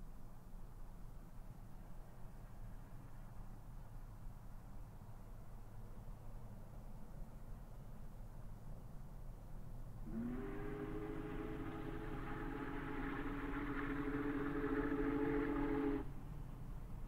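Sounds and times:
steam locomotive whistle blast: 0:10.1 - 0:16.1.

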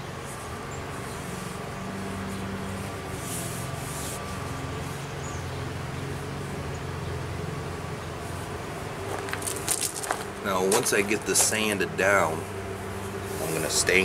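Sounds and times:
low engine hum: 0:00.0 - 0:14.0
hands rustling on wooden stick: 0:00.2 - 0:05.2, 0:09.1 - 0:11.7.

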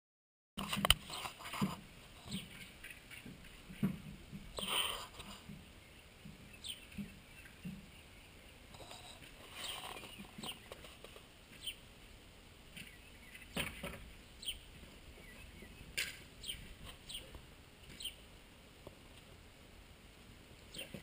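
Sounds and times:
small birds chirping: 0:00.7 - 0:19.4, 0:20.2 - 0:21.0.

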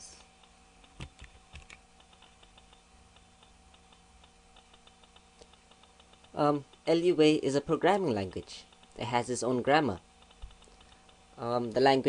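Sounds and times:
computer keyboard clicking: 0:00.8 - 0:06.9, 0:10.2 - 0:11.2.

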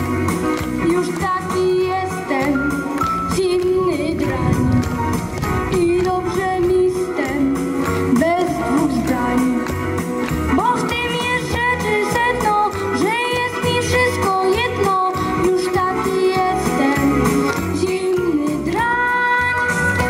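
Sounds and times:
instrumental backing with steady beat: 0:00.0 - 0:20.0
boy singing into a microphone: 0:05.7 - 0:07.6, 0:10.6 - 0:17.2, 0:17.8 - 0:20.0.

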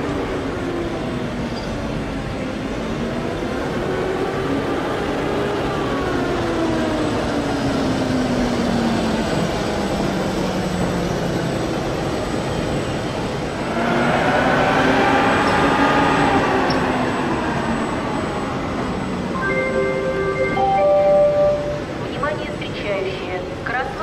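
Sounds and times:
rail noise: 0:00.0 - 0:24.0
higher whining tones: 0:13.6 - 0:22.1.

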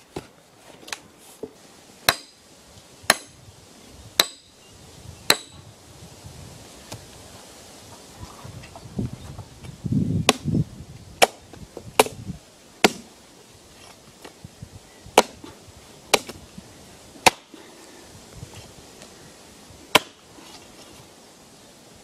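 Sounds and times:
axe chopping into stump: 0:02.1 - 0:02.4, 0:03.1 - 0:03.4, 0:05.3 - 0:05.5, 0:10.2 - 0:10.5, 0:11.2 - 0:11.4, 0:12.0 - 0:12.2, 0:12.8 - 0:13.1, 0:15.1 - 0:16.4, 0:17.2 - 0:17.5, 0:19.9 - 0:20.2.

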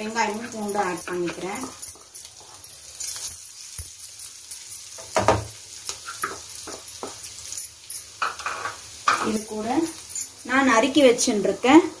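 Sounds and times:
spatula scraping and knocking pan: 0:00.0 - 0:03.9, 0:05.0 - 0:07.5, 0:08.2 - 0:09.5
onions sizzling in oil: 0:00.0 - 0:12.0.

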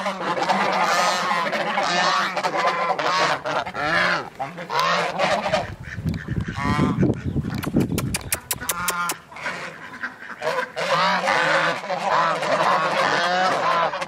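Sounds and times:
geese honking: 0:00.0 - 0:07.6, 0:08.2 - 0:14.0
sharp clicks: 0:07.5 - 0:09.2.

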